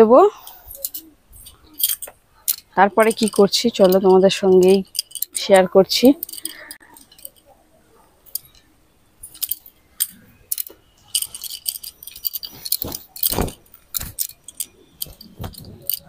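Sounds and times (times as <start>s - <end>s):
clothespins clicking and rattling: 0.4s - 16.0s
wet cloth flapping: 12.5s - 14.2s.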